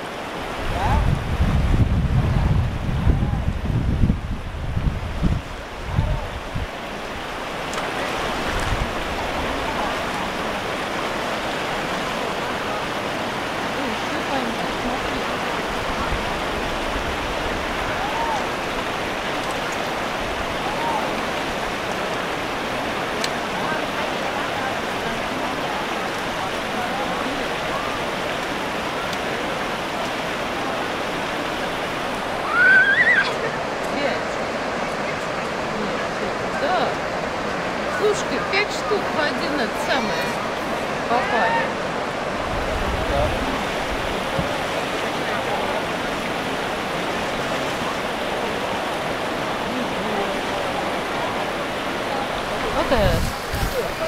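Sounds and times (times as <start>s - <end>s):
wind buffeting microphone: 0.0s - 23.2s, 41.8s - 54.0s
stream water rushing: 0.0s - 54.0s.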